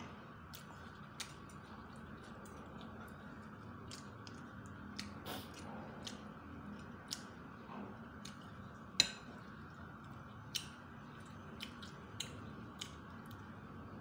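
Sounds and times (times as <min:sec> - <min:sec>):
wet mouth sounds of eating: 0:00.5 - 0:07.4.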